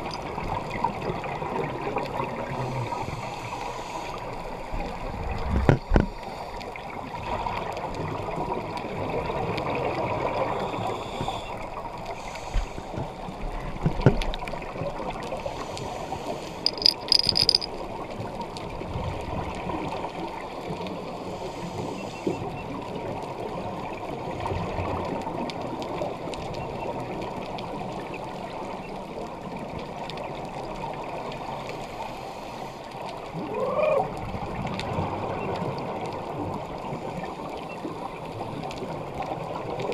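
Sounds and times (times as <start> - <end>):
quick clicks: 16.6 - 17.7.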